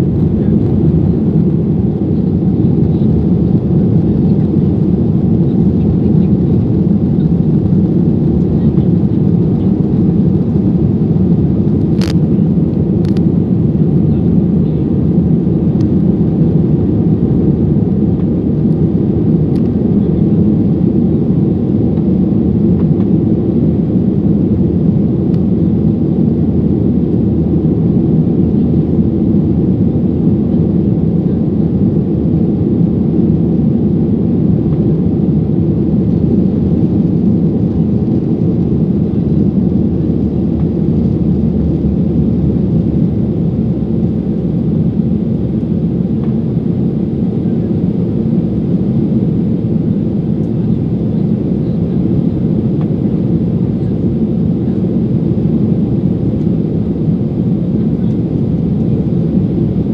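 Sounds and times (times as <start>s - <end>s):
airplane cabin engine roar: 0.0s - 59.9s.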